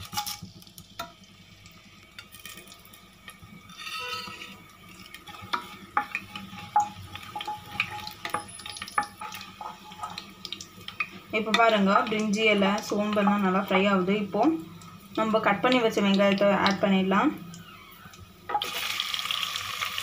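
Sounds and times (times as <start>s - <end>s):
spices sizzling in hot oil: 0.0s - 20.0s
spatula tapping and scraping pot: 5.2s - 13.5s.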